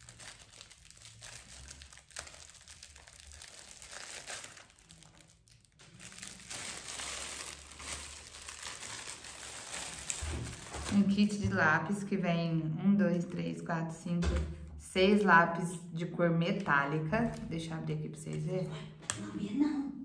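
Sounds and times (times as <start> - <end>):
plastic packaging crinkling: 0.0 - 11.4.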